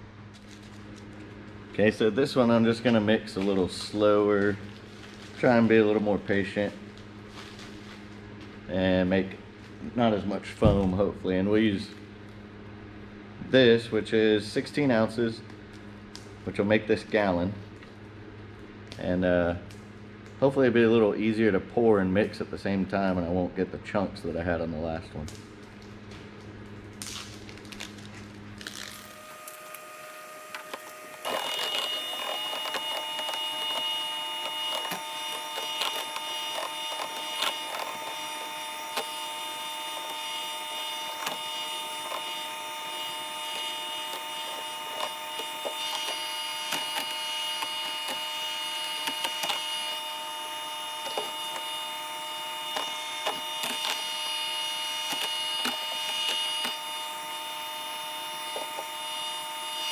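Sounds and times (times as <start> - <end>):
electric hand mixer whining: 29.0 - 59.9.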